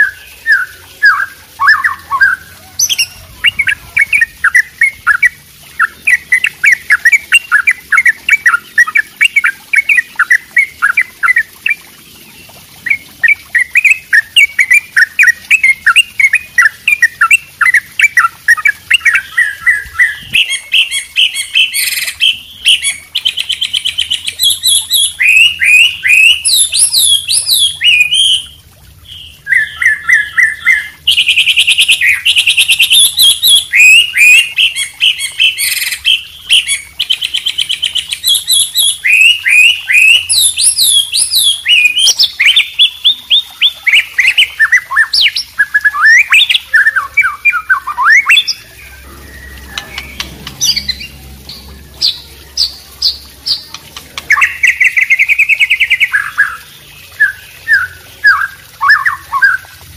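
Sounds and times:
songbirds chirping and trilling: 0:00.0 - 0:59.9.

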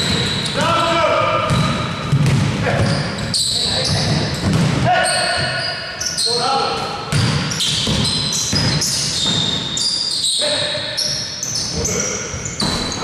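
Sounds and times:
sneakers squeaking on floor: 0:00.0 - 0:13.0
basketball bouncing: 0:01.4 - 0:05.5, 0:07.1 - 0:09.6.

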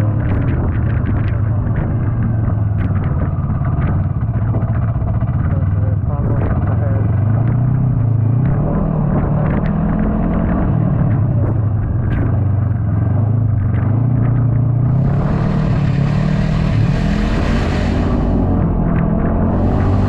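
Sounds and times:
snowmobile engine running: 0:00.0 - 0:20.0
rushing hiss: 0:15.7 - 0:18.5.

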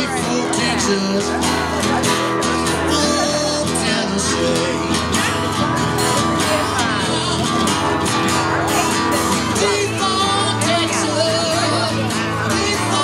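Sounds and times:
acoustic guitar duo playing: 0:00.0 - 0:13.0.

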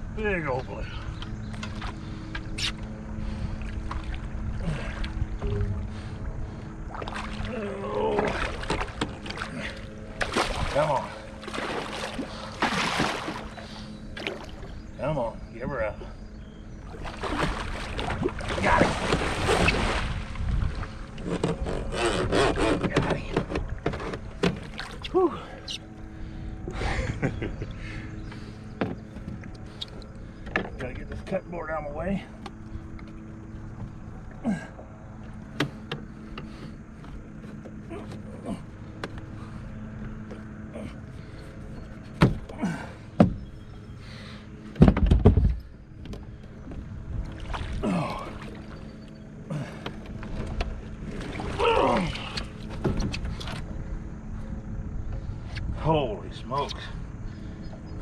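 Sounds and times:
fish thrashing and splashing water: 0:06.9 - 0:14.8, 0:16.9 - 0:20.5, 0:47.3 - 0:48.8, 0:50.2 - 0:52.6
gear knocking against boat: 0:20.4 - 0:25.2, 0:28.3 - 0:29.6, 0:30.3 - 0:31.5, 0:35.1 - 0:44.0, 0:44.6 - 0:47.4, 0:48.0 - 0:53.8
knocks and scrapes: 0:21.2 - 0:24.8.

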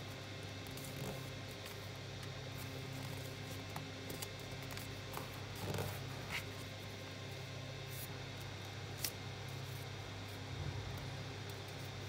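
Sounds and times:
paper rustling and creasing: 0:00.6 - 0:08.1.

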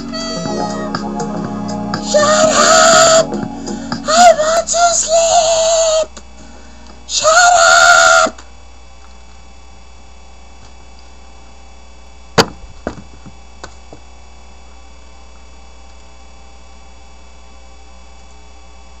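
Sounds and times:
steady electrical hum: 0:00.0 - 0:19.0
shoe slamming down: 0:12.4 - 0:13.1.

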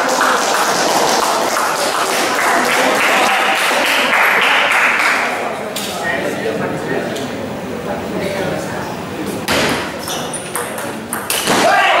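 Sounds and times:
spectators clapping: 0:00.0 - 0:05.5.

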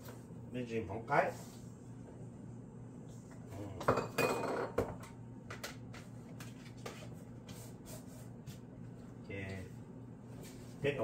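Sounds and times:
dishes and cutlery clinking: 0:03.8 - 0:05.0.

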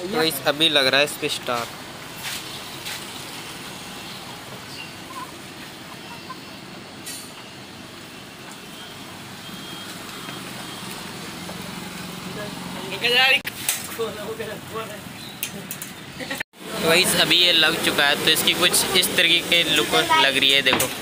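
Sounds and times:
road traffic noise: 0:00.0 - 0:21.0
faint high beep: 0:08.8 - 0:11.0.

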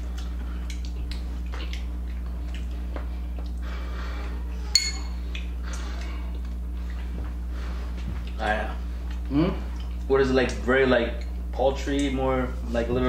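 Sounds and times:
steady low hum: 0:00.0 - 0:13.0
metal clinking on a dish: 0:04.7 - 0:05.1.

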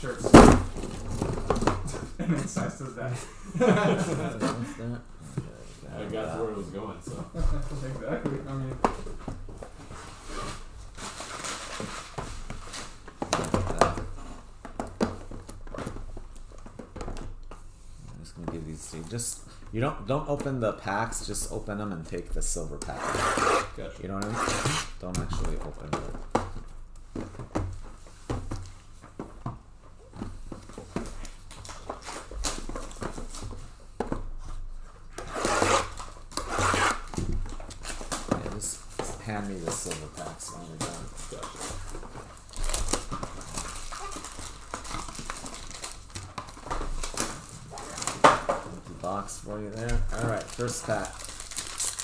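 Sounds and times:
cardboard and wrapping rubbing: 0:07.1 - 0:14.5, 0:34.4 - 0:52.0
packaging rustling and crinkling: 0:07.7 - 0:18.1, 0:25.3 - 0:52.0.

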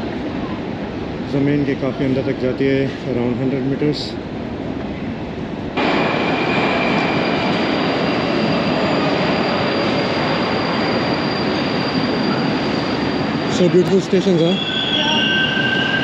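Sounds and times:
train wheels rumbling on rail: 0:00.0 - 0:16.0
high wheel squeal: 0:05.9 - 0:16.0.

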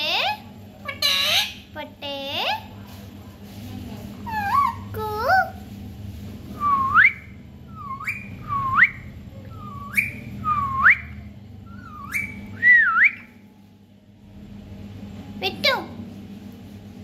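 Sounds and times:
parakeet whistling: 0:06.6 - 0:13.4.

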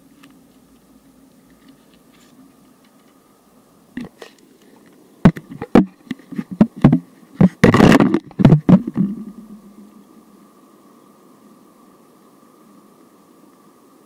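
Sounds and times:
steady background hiss: 0:00.0 - 0:14.0
short scraping rustle: 0:01.5 - 0:03.2
sharp loud knocks and bumps: 0:05.3 - 0:09.4.

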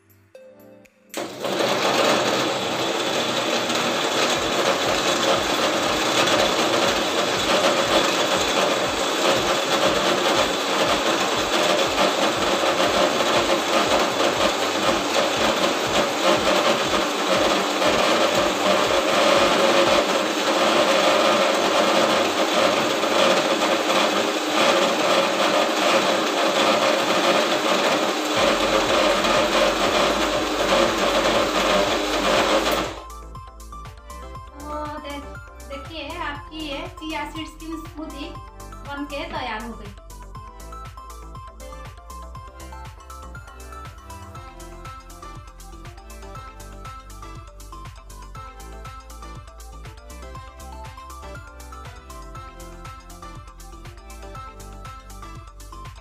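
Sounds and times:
mixer grinder motor whine: 0:01.2 - 0:33.2.

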